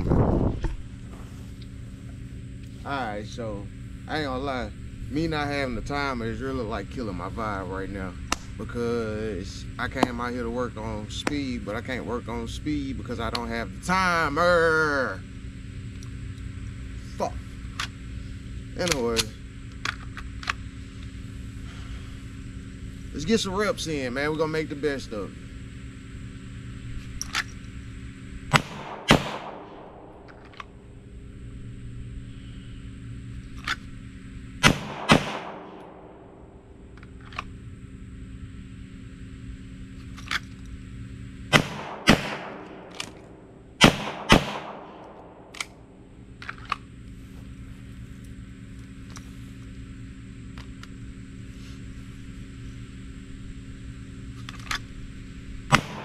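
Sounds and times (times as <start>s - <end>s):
pistol shots: 28.5s - 30.1s, 34.6s - 36.2s, 41.5s - 45.7s, 55.7s - 56.0s.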